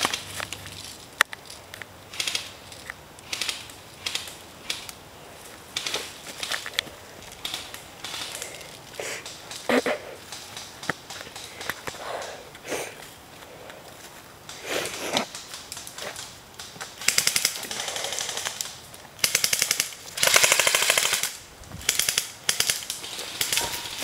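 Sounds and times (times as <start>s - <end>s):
airsoft guns firing bursts: 17.0s - 24.0s.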